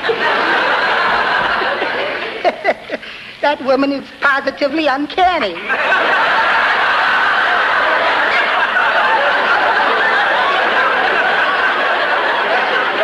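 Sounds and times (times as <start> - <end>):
studio audience laughing: 0.0 - 3.3, 5.2 - 13.0.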